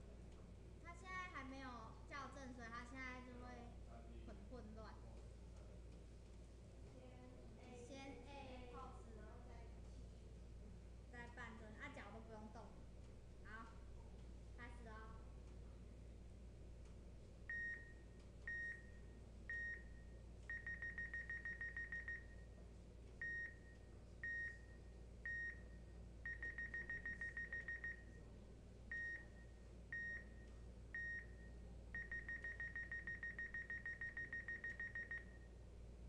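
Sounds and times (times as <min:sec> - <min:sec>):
single countdown beeps: 0:17.5 - 0:22.5, 0:23.2 - 0:28.2, 0:28.9 - 0:35.5
fast run of beeps: 0:20.5 - 0:22.3, 0:26.3 - 0:28.0, 0:31.0 - 0:35.4.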